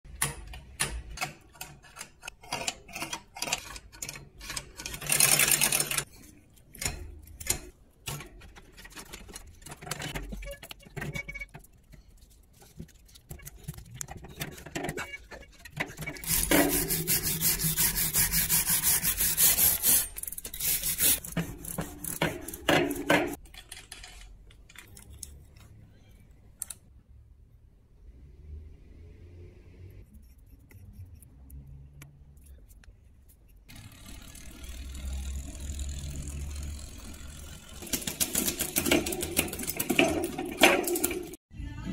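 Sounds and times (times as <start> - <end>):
cloth scrubbing bicycle chain: 16.2 - 22.7, 33.7 - 41.4.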